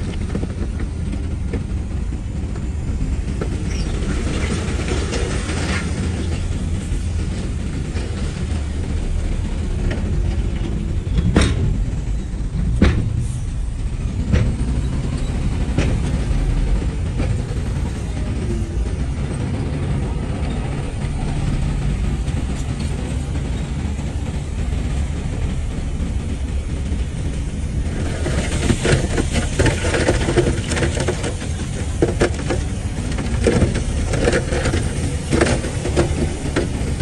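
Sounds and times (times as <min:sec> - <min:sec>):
diesel engine rumbling: 0:00.0 - 0:37.0
metallic clanking and squeaking: 0:14.2 - 0:16.2.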